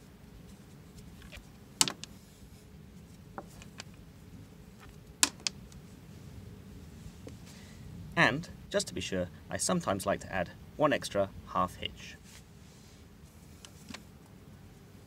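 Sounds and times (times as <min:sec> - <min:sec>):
low steady background noise: 0:00.0 - 0:15.0
rope clicks and taps: 0:04.8 - 0:05.8.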